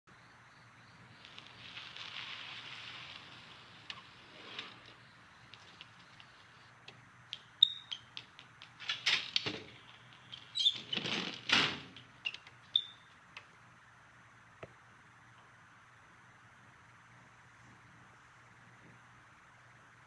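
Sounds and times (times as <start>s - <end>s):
small clicks and taps: 5.5s - 10.4s
short high squeaks: 7.6s - 8.2s, 10.4s - 11.5s, 12.2s - 13.1s.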